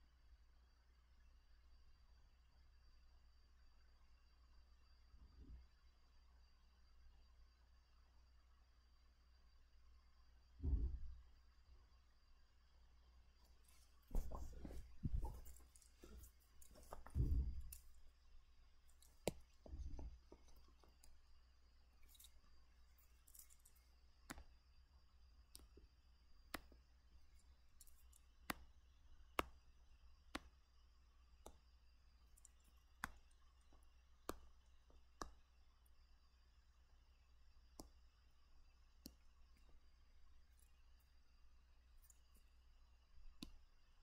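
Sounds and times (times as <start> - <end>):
soft thump: 14.1 - 17.8.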